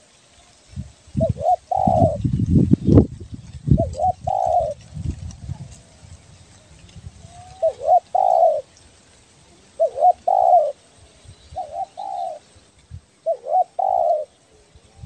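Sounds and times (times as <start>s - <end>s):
dove cooing: 1.2s - 2.3s, 3.7s - 8.8s, 9.4s - 12.6s, 13.2s - 15.0s.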